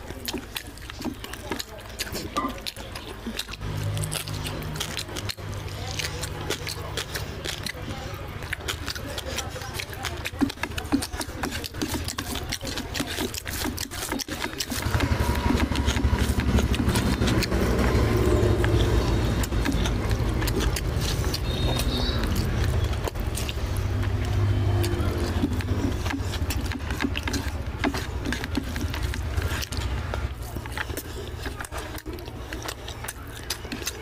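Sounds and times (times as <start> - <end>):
chewing: 0.0 - 34.0
wet smacking of food mixed by hand: 0.0 - 34.0.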